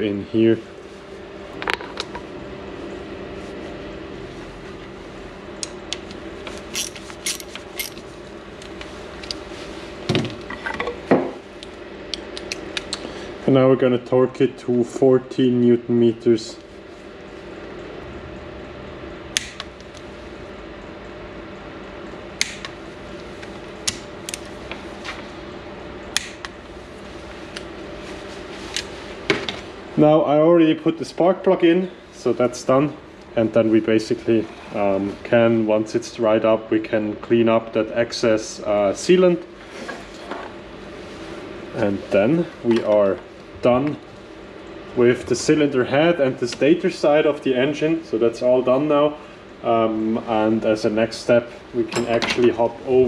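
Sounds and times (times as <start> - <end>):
steady hum: 0.0 - 53.0
tools knocking on bench: 10.1 - 11.4.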